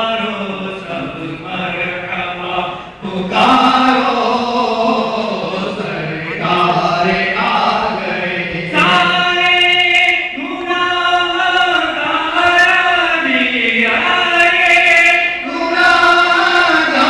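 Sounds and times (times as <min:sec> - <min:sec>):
men chanting in unison: 0:00.0 - 0:17.0.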